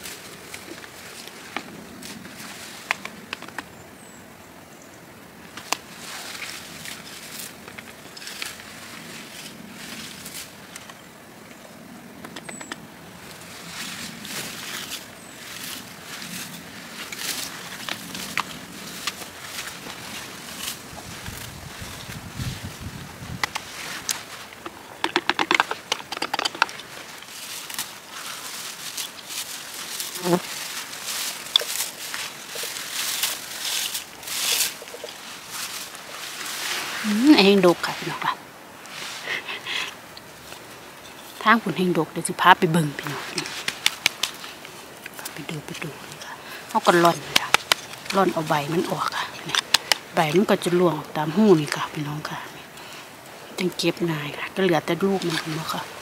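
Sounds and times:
shrubs rustling: 0:00.0 - 0:56.0
twigs snapping: 0:02.8 - 0:03.7, 0:14.2 - 0:22.2, 0:23.1 - 0:36.7, 0:43.0 - 0:50.5
berry rake clicking and rattling: 0:23.2 - 0:37.3, 0:42.8 - 0:50.8.

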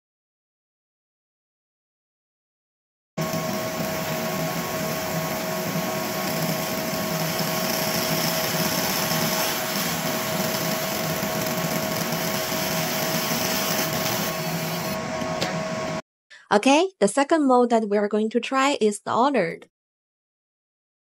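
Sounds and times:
laser engraver buzzing hiss: 0:03.2 - 0:15.0
mid-pitched whine: 0:03.2 - 0:16.0.

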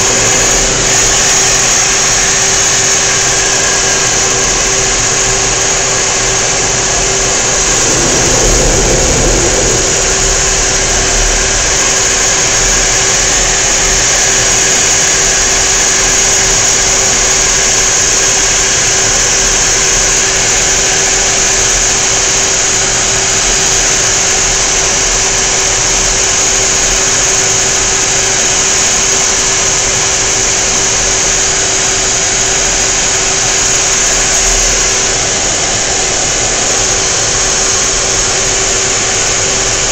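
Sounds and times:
jet engine and rushing air: 0:04.6 - 0:14.5
low rumble: 0:04.9 - 0:14.2.

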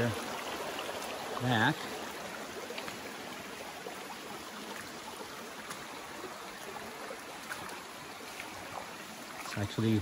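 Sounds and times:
creek running over rocks: 0:00.0 - 0:10.0.

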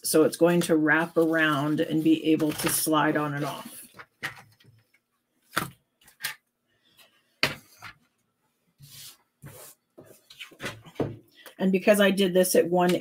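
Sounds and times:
paper rustle: 0:01.0 - 0:04.7.

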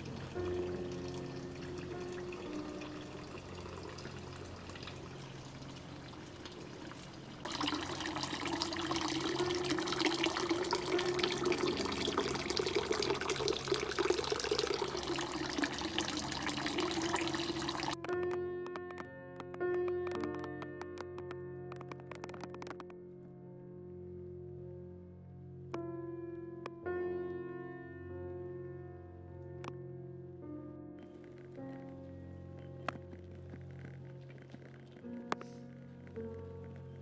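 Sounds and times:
running water: 0:00.0 - 0:18.0
soft background music: 0:00.0 - 0:37.0.

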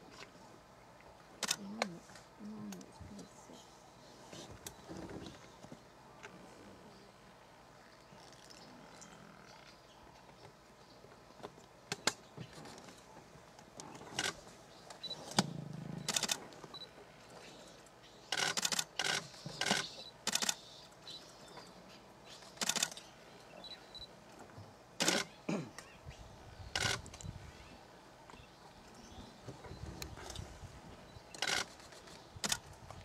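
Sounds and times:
faint bird chirps: 0:14.7 - 0:24.1
camera shutters firing: 0:18.4 - 0:20.6, 0:25.0 - 0:25.3.

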